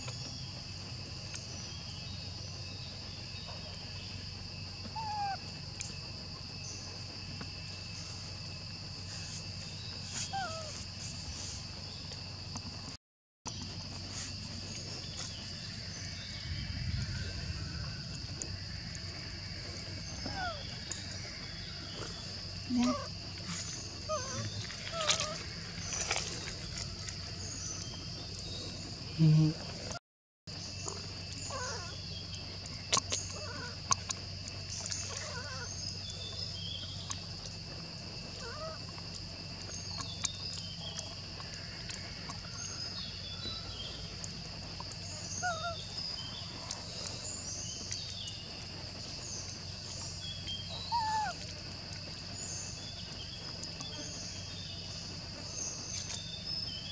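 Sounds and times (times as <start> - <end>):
insect drone: 0.0 - 56.9.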